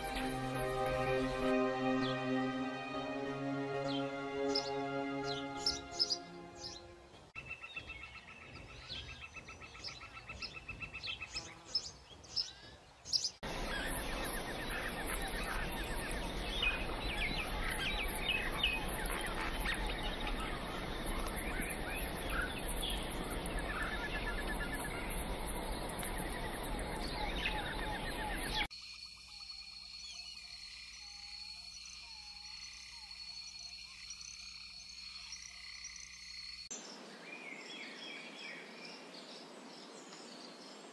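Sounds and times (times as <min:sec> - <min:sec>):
steady background hiss: 0:00.0 - 0:07.3, 0:13.4 - 0:28.7
birds calling and chirping: 0:00.0 - 0:28.7.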